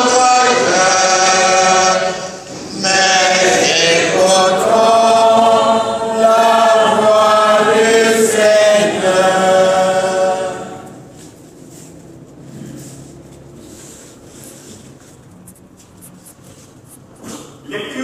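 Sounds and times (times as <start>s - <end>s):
choir singing chant: 0.0s - 11.0s.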